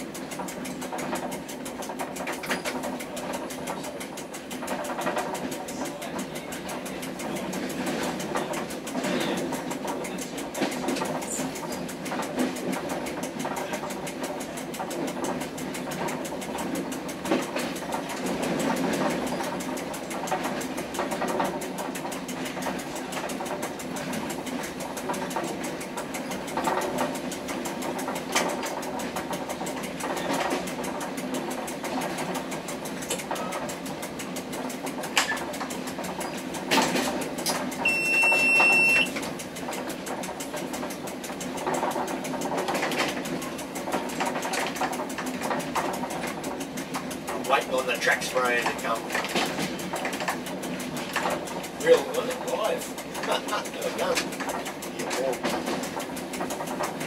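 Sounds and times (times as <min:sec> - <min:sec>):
rail vehicle engine drone: 0:00.0 - 0:57.0
wheels clicking on track: 0:00.0 - 0:57.0
short high-pitched beep: 0:37.8 - 0:39.1.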